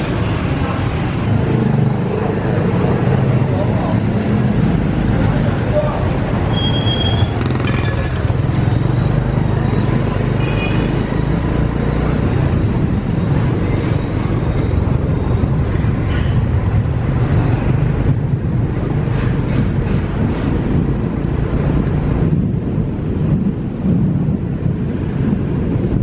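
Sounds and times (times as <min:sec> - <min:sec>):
motorbike and car traffic: 0:00.0 - 0:26.0
wind on microphone: 0:11.1 - 0:26.0.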